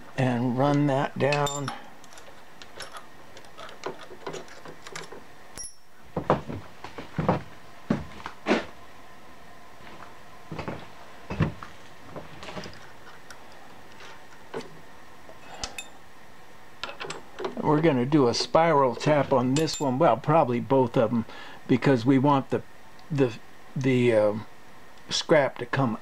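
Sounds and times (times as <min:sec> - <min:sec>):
metal clicks and knocks of drill chuck: 0:01.4 - 0:05.2.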